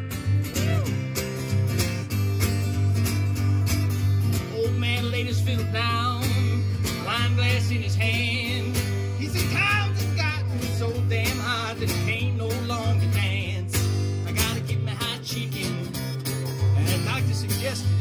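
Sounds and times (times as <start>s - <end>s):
acoustic guitar strumming: 0.0s - 18.0s
man singing: 4.3s - 18.0s.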